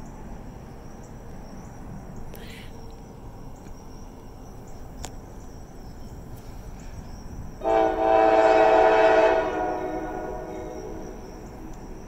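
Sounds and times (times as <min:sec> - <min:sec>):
crickets chirping: 0:00.0 - 0:12.0
locomotive air horn: 0:07.6 - 0:11.4.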